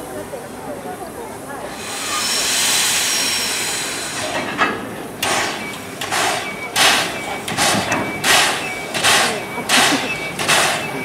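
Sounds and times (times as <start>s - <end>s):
steam locomotive chuffing: 0.0s - 11.0s
steam hissing: 1.5s - 11.0s.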